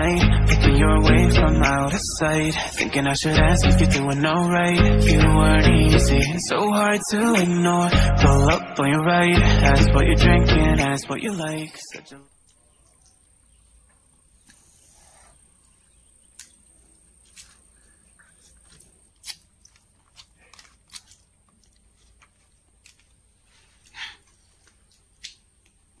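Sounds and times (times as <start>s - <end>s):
person chewing with mouth smacks: 18.2s - 23.1s.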